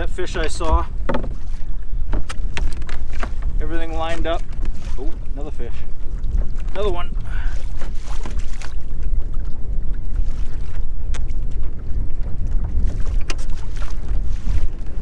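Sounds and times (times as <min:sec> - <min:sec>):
water lapping against kayak hull: 0:00.0 - 0:15.0
wind buffeting microphone: 0:00.0 - 0:15.0.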